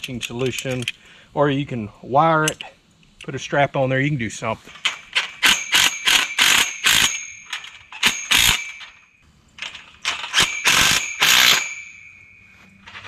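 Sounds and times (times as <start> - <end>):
cordless driver bursts: 5.4 - 7.2, 8.0 - 8.8, 10.3 - 11.8
steel tubing ringing: 6.7 - 9.2, 10.4 - 12.9.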